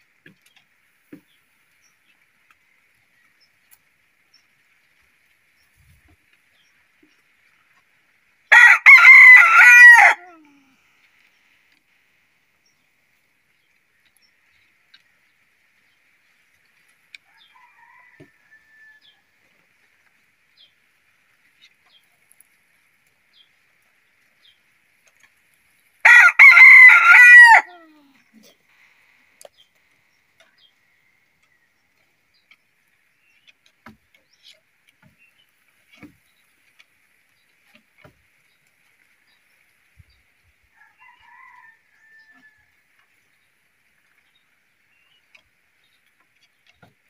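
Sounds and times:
rooster crowing: 0:08.5 - 0:10.4, 0:17.3 - 0:19.2, 0:26.0 - 0:27.9, 0:40.8 - 0:42.7.

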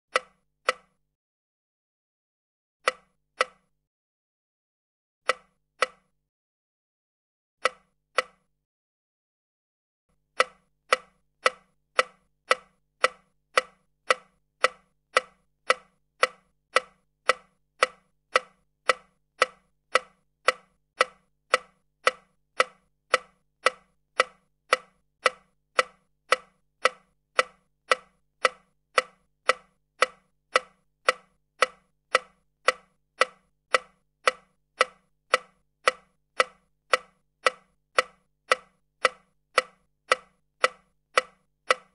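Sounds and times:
mechanical ticking: 0:10.3 - 0:41.9.

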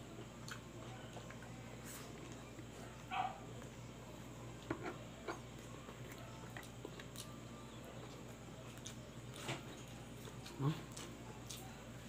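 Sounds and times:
low steady hum: 0:00.0 - 0:12.0
chewing and wet mouth clicks: 0:00.4 - 0:00.6, 0:08.1 - 0:11.7.

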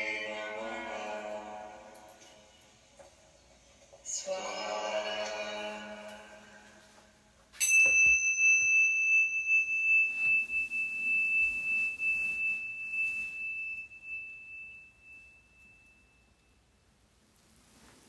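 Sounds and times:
meditation bell ringing: 0:07.6 - 0:16.9
faint rustles of movement: 0:17.2 - 0:18.0.

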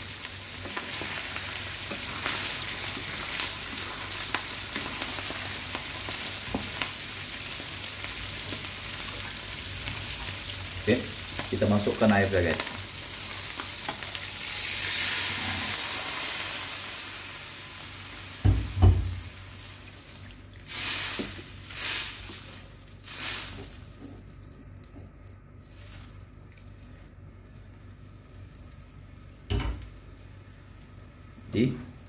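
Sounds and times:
water sizzling in hot wok: 0:00.0 - 0:24.4.

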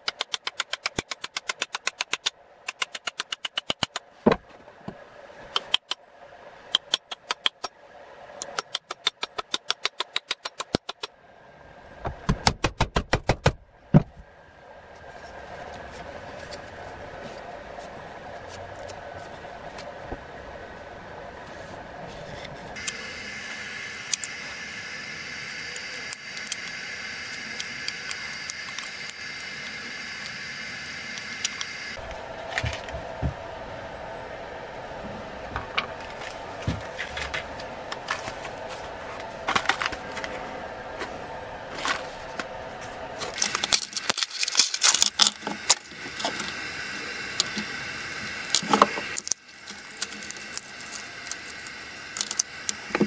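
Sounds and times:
steady background hum: 0:00.0 - 0:53.0
crackling clicks: 0:47.4 - 0:53.0.

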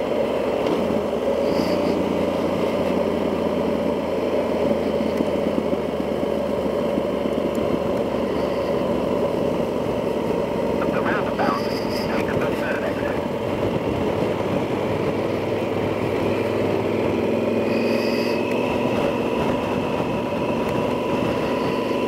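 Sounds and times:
motorcycle engine cruising: 0:00.0 - 0:22.0
wind rush: 0:06.4 - 0:22.0.

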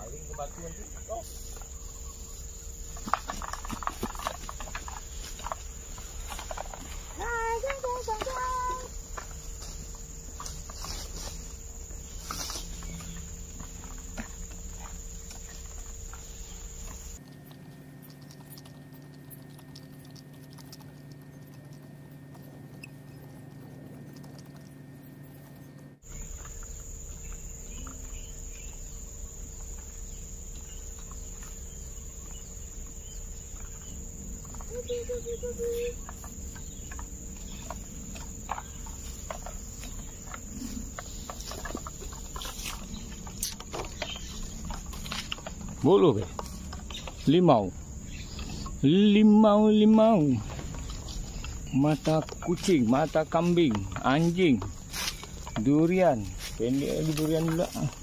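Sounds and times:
insect drone: 0:00.0 - 0:58.0
dry leaves rustling underfoot: 0:03.3 - 0:14.8, 0:49.8 - 0:58.0.

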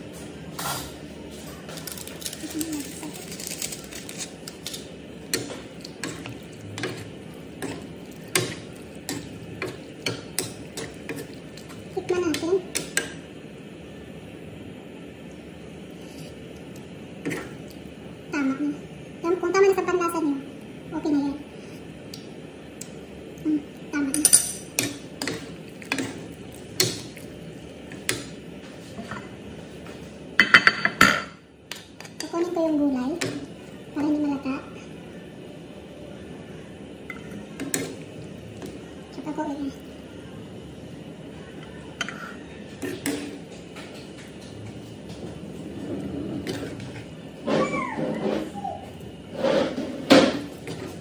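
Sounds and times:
utensils scraping frying pan: 0:49.3 - 0:51.0.

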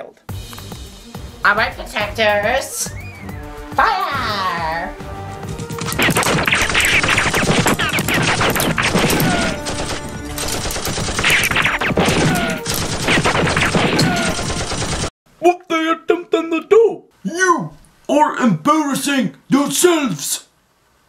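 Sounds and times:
rapid gunfire: 0:05.5 - 0:15.1.

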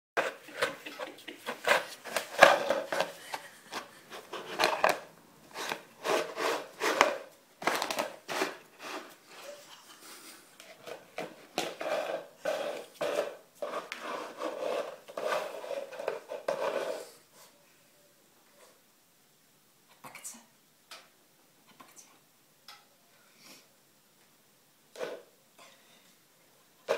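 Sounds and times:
bowl scraping on wooden floor: 0:01.5 - 0:09.6, 0:10.8 - 0:17.2.

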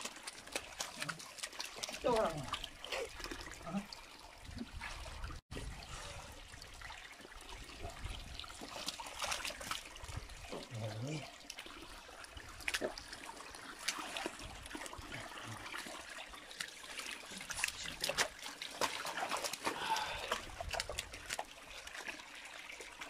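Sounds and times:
fish flopping and splashing: 0:00.0 - 0:03.6, 0:08.2 - 0:10.7, 0:11.4 - 0:23.0
water trickling from drain: 0:00.0 - 0:23.0.

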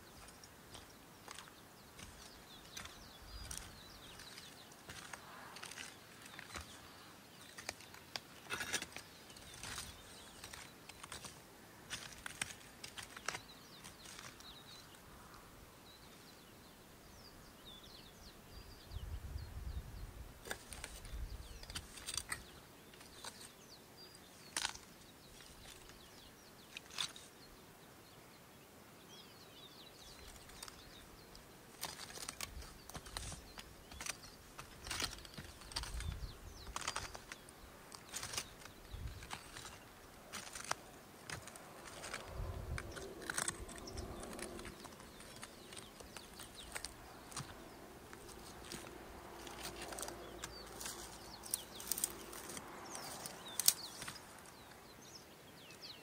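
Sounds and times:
low wind rumble on microphone: 0:17.1 - 0:21.8, 0:35.7 - 0:36.8, 0:38.7 - 0:39.3, 0:41.6 - 0:45.6
crunching clicks: 0:31.8 - 0:54.6.

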